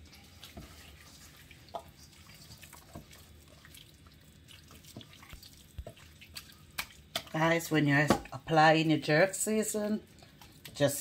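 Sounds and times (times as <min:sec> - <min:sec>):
hands kneading raw meat: 0:00.0 - 0:08.4.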